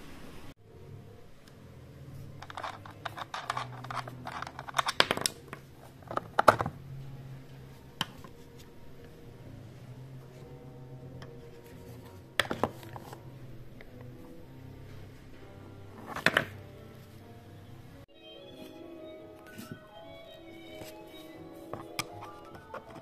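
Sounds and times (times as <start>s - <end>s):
hard plastic clicking and scraping: 2.4s - 6.8s, 21.7s - 23.0s.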